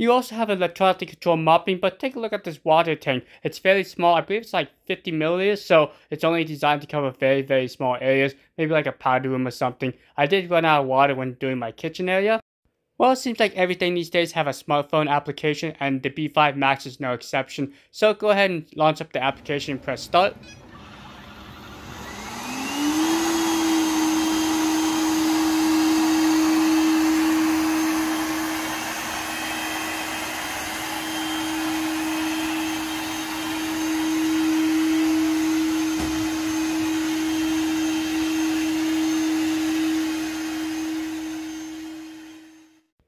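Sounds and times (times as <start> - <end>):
robot vacuum motor whine and hum: 19.7 - 42.8.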